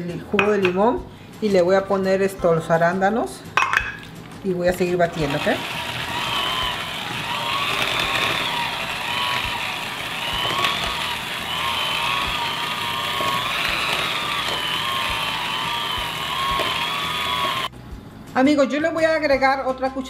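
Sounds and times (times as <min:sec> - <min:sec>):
electric hand mixer running: 0:05.1 - 0:17.7.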